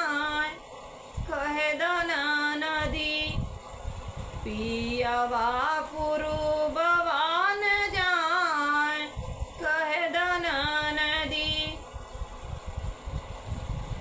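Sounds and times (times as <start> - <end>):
woman singing folk song: 1.2 - 3.4, 4.4 - 11.8.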